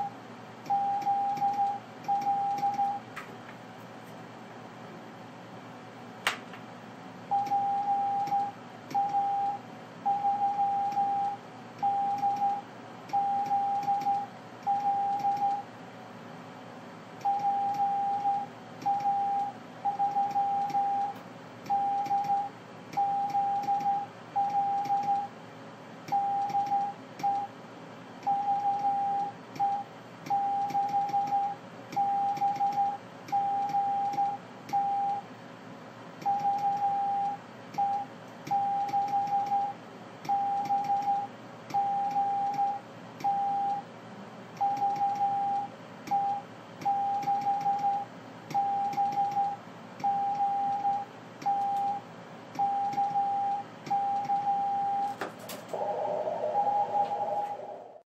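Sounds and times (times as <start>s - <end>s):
morse code tone: 44.6s - 52.0s.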